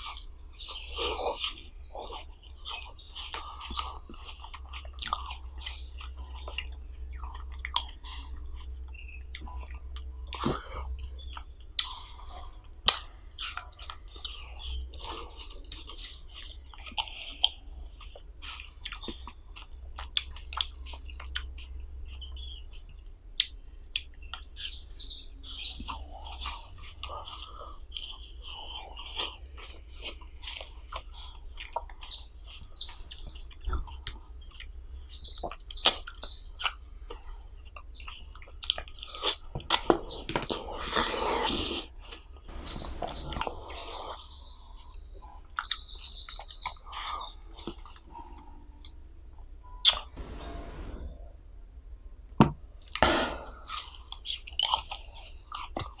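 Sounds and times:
wet chewing and biting: 37.8s - 42.2s.

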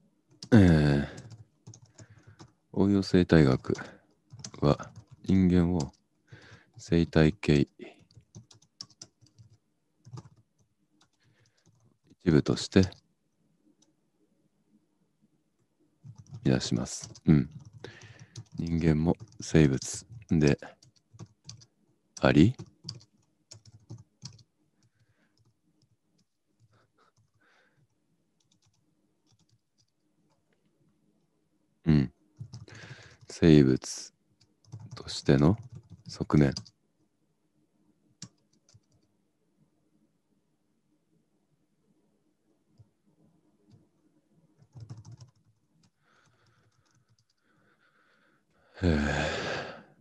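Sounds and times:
keyboard typing: 0.3s - 2.6s, 3.4s - 7.3s, 7.9s - 11.9s, 16.0s - 30.5s, 32.4s - 33.3s, 34.4s - 36.8s, 38.2s - 39.1s, 44.5s - 47.6s.

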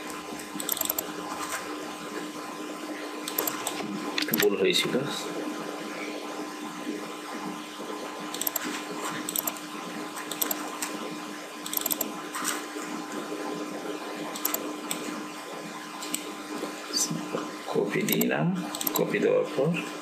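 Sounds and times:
background hum and hiss: 0.0s - 20.0s
computer mouse clicking: 0.6s - 1.0s, 3.3s - 4.5s, 8.3s - 8.7s, 9.3s - 9.6s, 10.3s - 10.6s, 11.7s - 12.1s, 14.4s - 15.0s, 18.1s - 19.1s.

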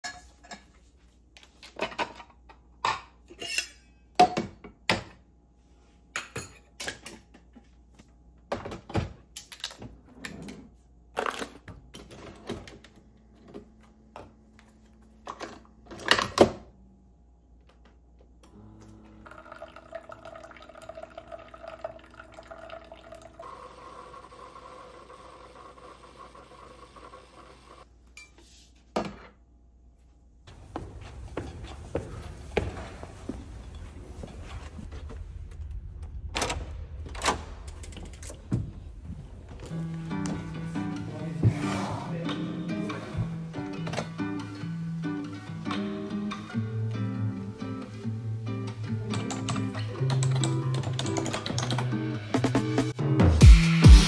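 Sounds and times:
coffee machine humming: 18.5s - 27.8s.

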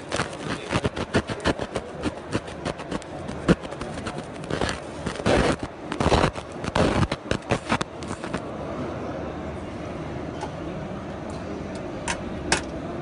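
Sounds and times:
laser crackling sharp clicks: 0.0s - 8.4s.

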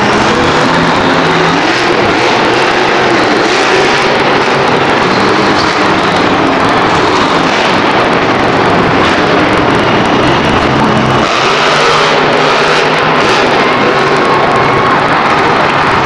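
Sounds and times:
monster truck engine running hard: 0.0s - 16.0s.

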